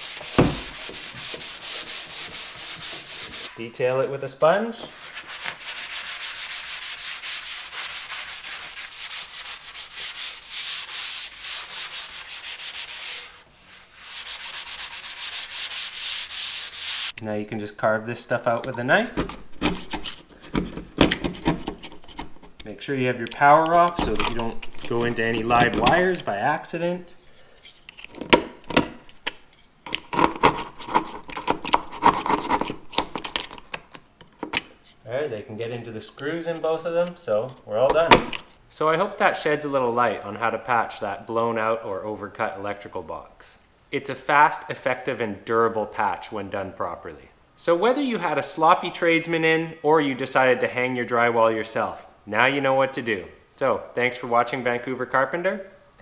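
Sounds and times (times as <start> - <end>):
sanding sponge scrubbing: 0.0 - 3.5, 4.9 - 17.2.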